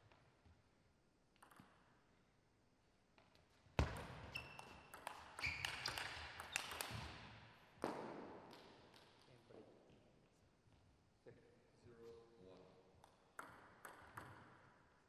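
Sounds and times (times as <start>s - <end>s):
shoes squeaking on floor: 4.2s - 7.1s
table tennis ball clicks: 4.6s - 7.1s, 13.0s - 14.5s.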